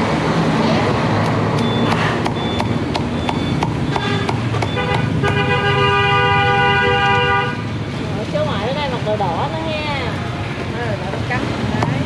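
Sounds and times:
street traffic hum: 0.0 - 12.0
cleaver chopping on wooden block: 1.9 - 5.4
vehicle horn: 3.9 - 7.7.

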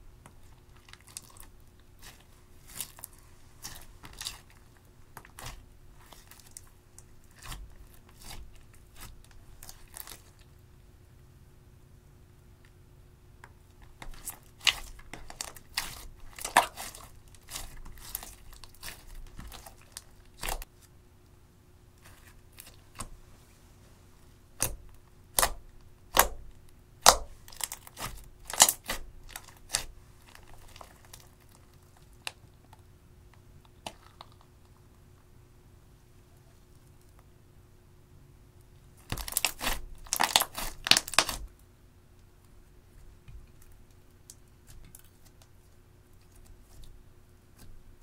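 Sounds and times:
slime crackling and popping: 13.9 - 20.7, 24.6 - 32.4, 39.0 - 41.5.

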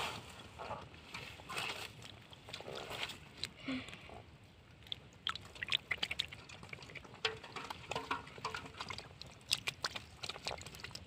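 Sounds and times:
water splashing and dripping: 4.6 - 11.0.

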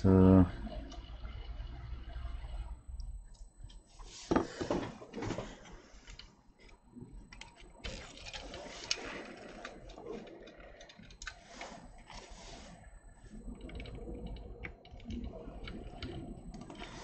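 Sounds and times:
handling clicks rustles and scrapes: 4.0 - 12.8.

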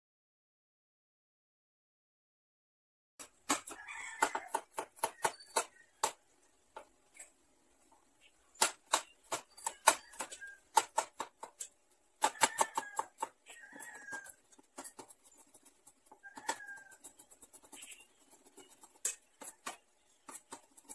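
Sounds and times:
knife chopping on wooden board: 3.2 - 6.2, 8.6 - 20.9.

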